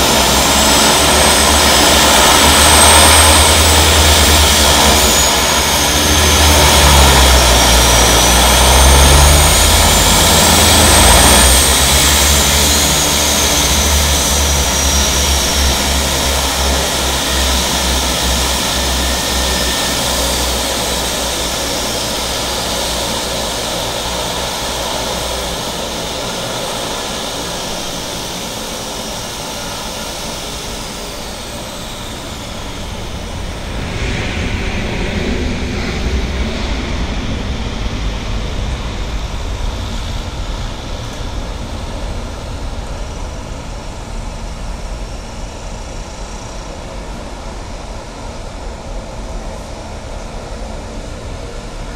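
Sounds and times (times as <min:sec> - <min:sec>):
propeller drone: 0:00.0 - 0:51.9
turbine whine: 0:00.0 - 0:51.9.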